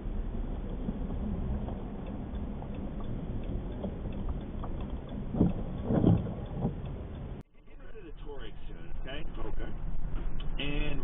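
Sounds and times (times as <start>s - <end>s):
car engine and tyres rumbling: 0.0s - 11.0s.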